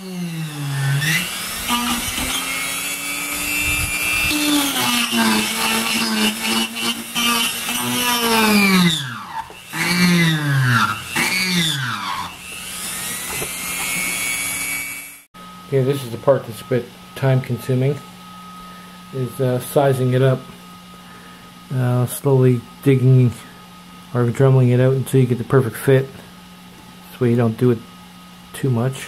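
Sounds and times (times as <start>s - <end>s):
rotary tool cutting plastic: 0.0s - 15.2s.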